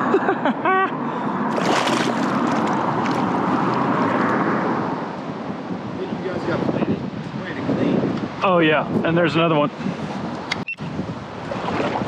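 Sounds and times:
wind on microphone: 0:01.2 - 0:12.0
water moving around legs: 0:01.5 - 0:04.4.

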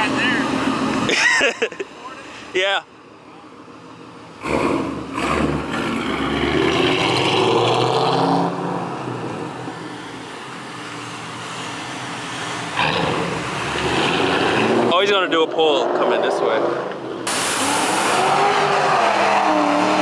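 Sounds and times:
car engine revving: 0:04.4 - 0:09.7, 0:11.7 - 0:20.0.

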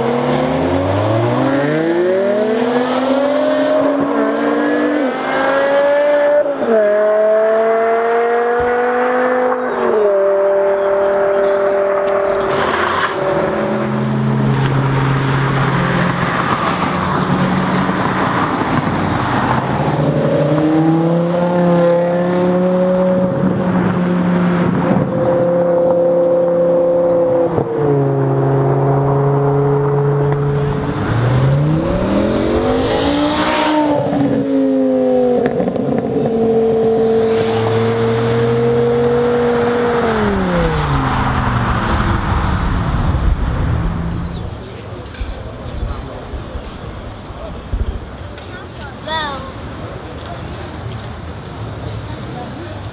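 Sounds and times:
sports car engines accelerating: 0:00.0 - 0:52.9
car passing by: 0:36.6 - 0:45.6.

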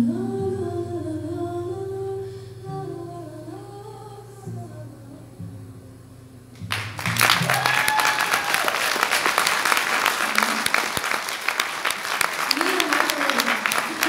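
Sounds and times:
quiet low song notes: 0:00.0 - 0:07.5
audience applause: 0:06.7 - 0:14.0
audience cheering: 0:06.7 - 0:14.0.

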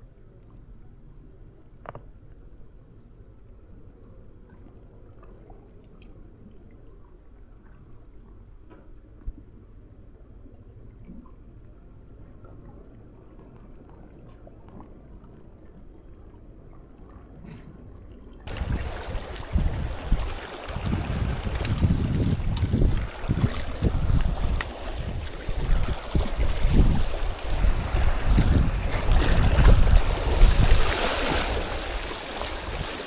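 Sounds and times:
sea wind and water rumble: 0:00.0 - 0:33.0
wind buffeting microphone: 0:18.5 - 0:33.0
faint small ticks: 0:20.2 - 0:23.1.

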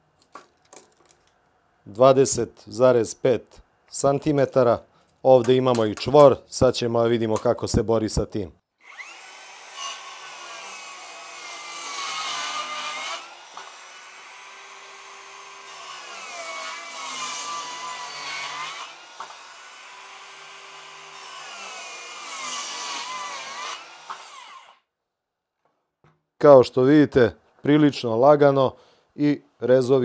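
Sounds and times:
circular saw cutting wood: 0:08.8 - 0:24.8.

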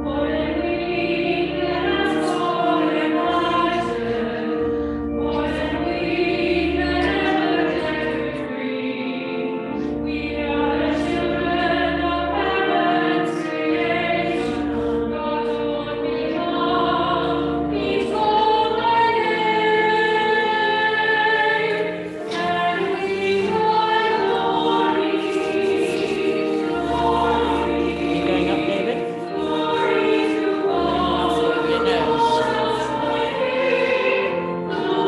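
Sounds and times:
people singing a hymn: 0:00.0 - 0:35.0
organ low sustained notes: 0:24.9 - 0:34.8.

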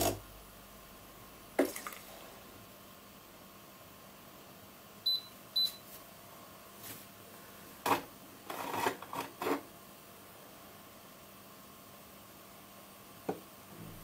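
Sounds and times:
coffee machine beeps: 0:05.0 - 0:05.9.

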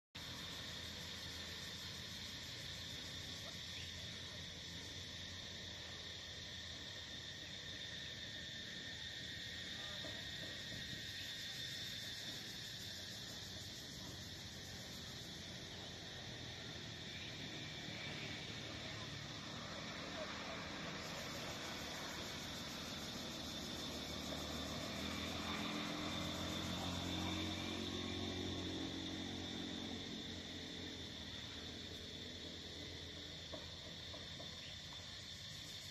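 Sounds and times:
insects droning: 0:00.2 - 0:35.9.

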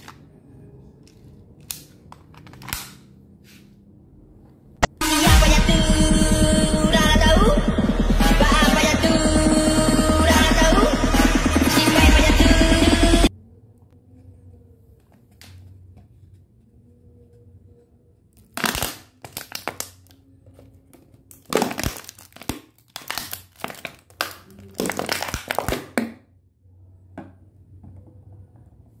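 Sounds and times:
plastic bottle crinkling: 0:21.3 - 0:25.9.

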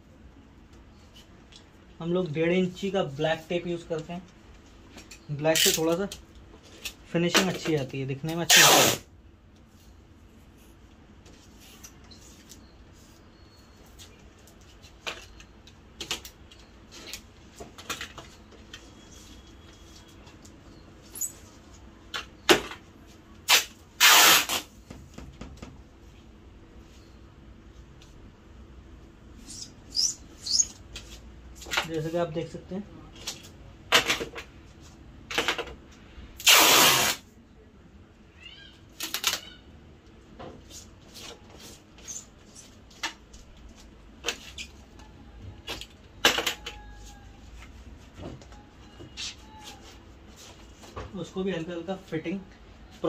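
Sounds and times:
adhesive tape ripping off roll: 0:08.5 - 0:09.1, 0:23.5 - 0:24.7, 0:36.4 - 0:37.2.

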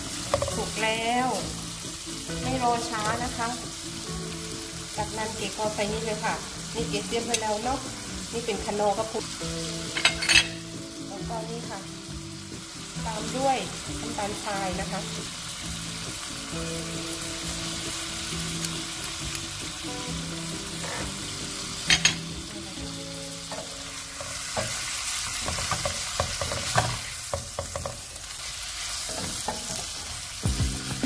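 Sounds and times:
food sizzling in a frying pan: 0:00.0 - 0:31.0
spatula scraping and tapping pan: 0:23.5 - 0:28.1.

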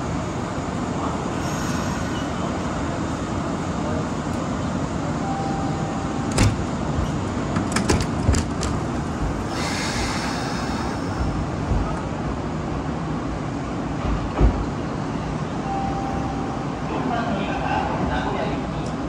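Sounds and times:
train wheels rumbling on rail: 0:00.0 - 0:05.2, 0:05.8 - 0:15.6
high hiss: 0:09.5 - 0:11.6.

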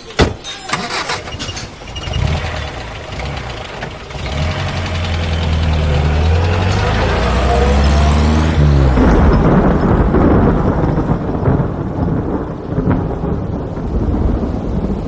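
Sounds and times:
vehicle engine running: 0:02.0 - 0:10.0.

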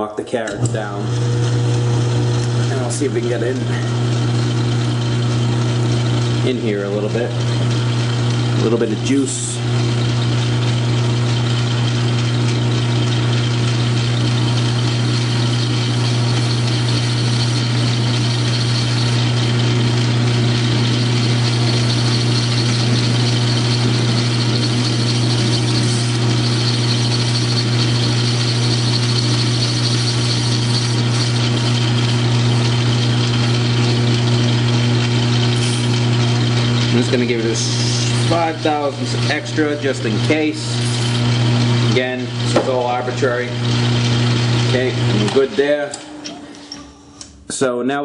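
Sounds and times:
lathe running with steady hum: 0:00.0 - 0:47.4
grooving tool cutting workpiece: 0:12.1 - 0:46.8.

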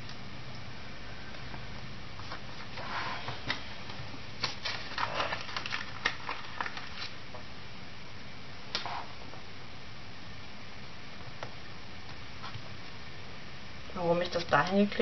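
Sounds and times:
paper rustling: 0:04.4 - 0:07.2.

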